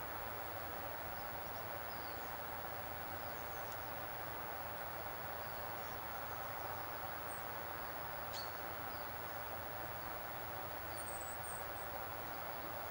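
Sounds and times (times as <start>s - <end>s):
outdoor background noise: 0.0s - 12.9s.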